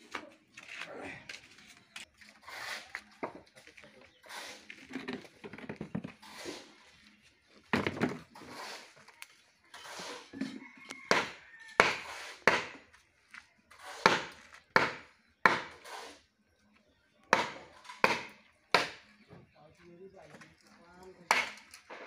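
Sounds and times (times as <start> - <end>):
hand tool striking wood: 11.1 - 12.8.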